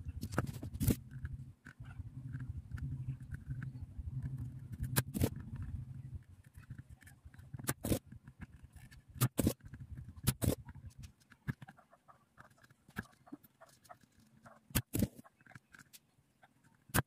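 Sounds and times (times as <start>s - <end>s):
low hum: 0.0s - 7.6s.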